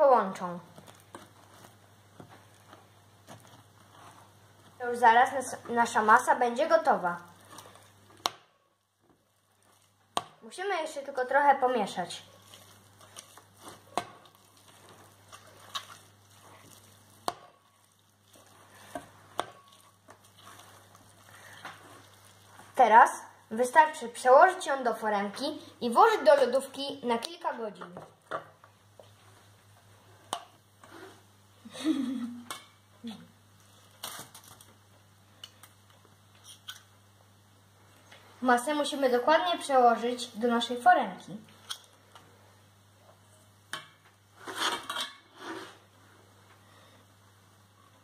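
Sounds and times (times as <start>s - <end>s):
spoon scraping and squishing: 0.8s - 4.4s, 7.0s - 8.3s, 9.3s - 10.4s, 11.8s - 22.8s, 36.3s - 36.9s, 43.8s - 45.9s
metal spoons scraping a pot: 43.8s - 45.8s.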